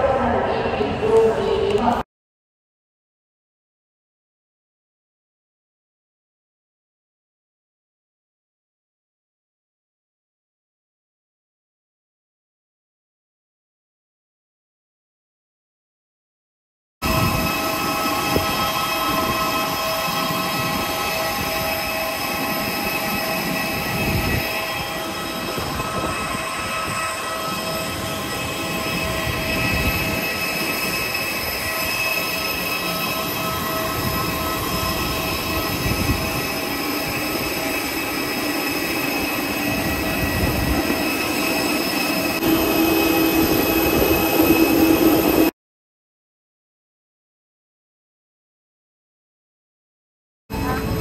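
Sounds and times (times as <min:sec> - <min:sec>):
jet turbines whining: 0:17.0 - 0:45.5, 0:50.5 - 0:51.0
low hum: 0:17.1 - 0:45.5.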